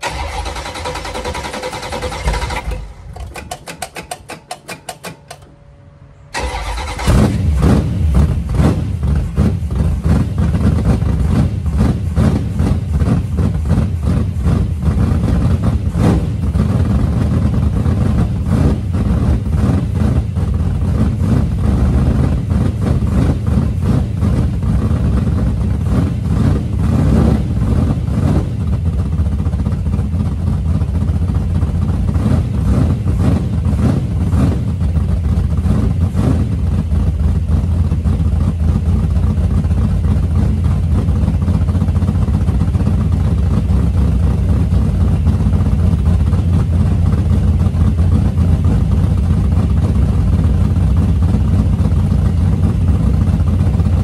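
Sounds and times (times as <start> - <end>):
car engine idling and revving: 0.0 - 54.0.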